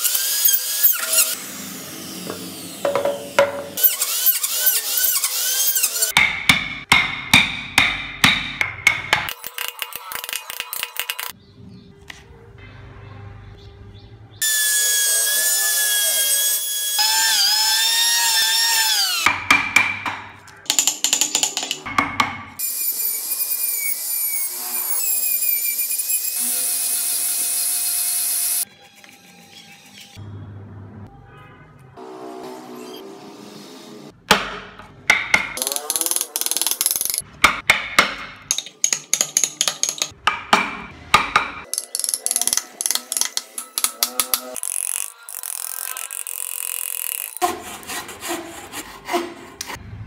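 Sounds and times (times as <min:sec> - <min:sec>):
rotary tool grinding wood: 0:00.0 - 0:06.2, 0:22.6 - 0:30.2, 0:44.2 - 0:49.8
hammer striking chisel: 0:02.2 - 0:04.0, 0:06.1 - 0:11.3, 0:19.2 - 0:22.6, 0:34.3 - 0:44.6.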